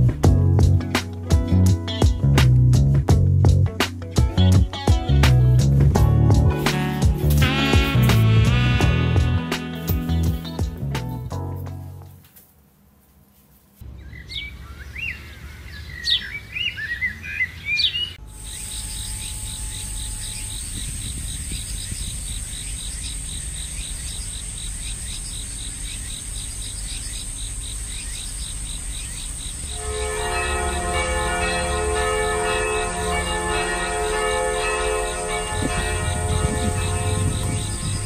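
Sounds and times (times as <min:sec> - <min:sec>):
birds chirping: 0:13.8 - 0:38.0
steady high-pitched drone: 0:18.2 - 0:21.8, 0:29.6 - 0:38.0
low rumble: 0:29.6 - 0:38.0.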